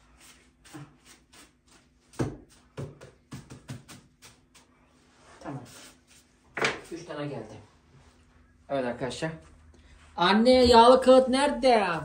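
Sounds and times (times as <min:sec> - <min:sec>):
hands slapping dough: 0:00.5 - 0:04.7.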